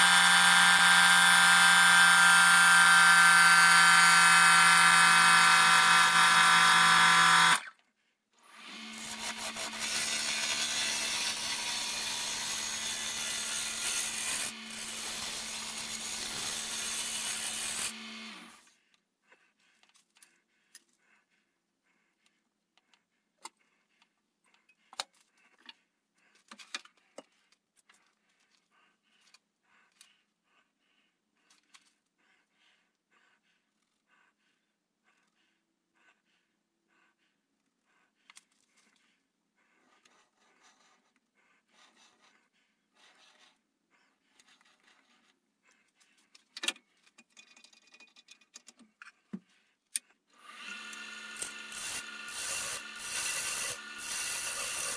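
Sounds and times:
power tool cutting wood: 0.0 - 7.7, 8.4 - 18.7, 50.4 - 54.9.

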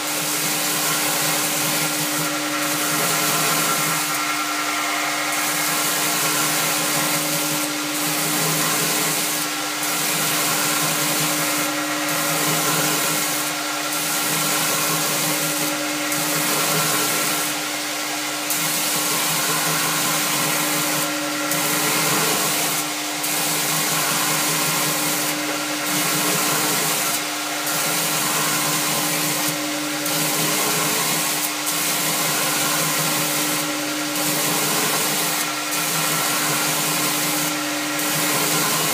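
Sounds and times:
belt grinder grinding steel: 0.0 - 38.9
motor hum: 0.8 - 38.9.

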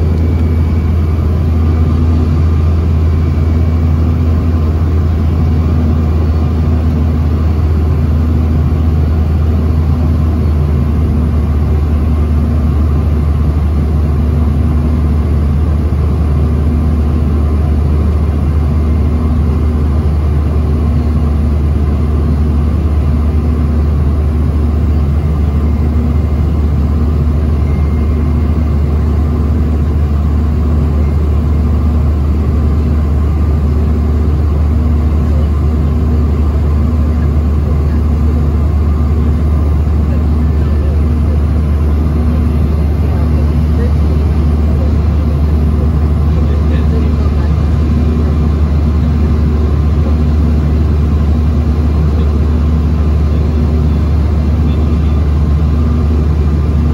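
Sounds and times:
jet cabin drone: 0.0 - 56.9.

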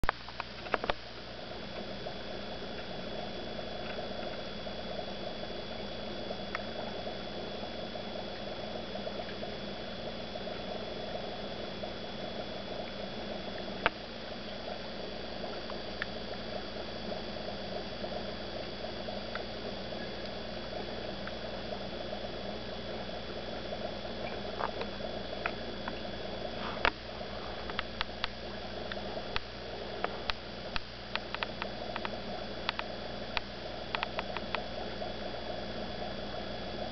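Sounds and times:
aquarium water bubbling: 0.0 - 36.9
faint high whine: 0.0 - 36.9
sharp clicks: 27.7 - 34.6.

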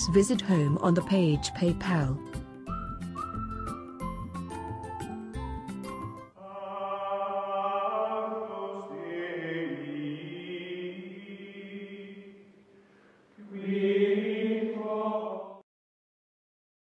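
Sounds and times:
choir voices holding chords: 6.4 - 12.5, 13.4 - 15.6.

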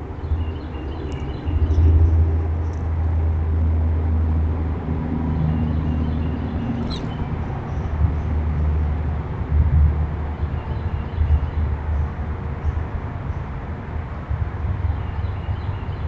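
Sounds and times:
low outdoor rumble: 0.0 - 10.6.

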